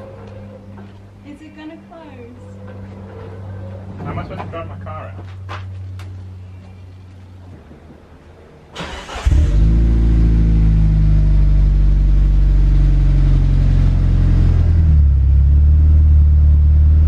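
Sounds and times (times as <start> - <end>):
car engine cranking: 8.8 - 11.7.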